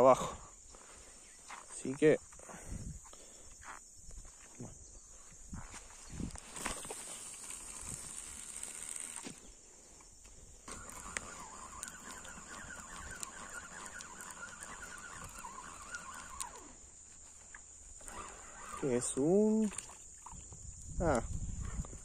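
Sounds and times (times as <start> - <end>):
fishing reel whirring: 6.3 - 9.6, 10.6 - 21.2.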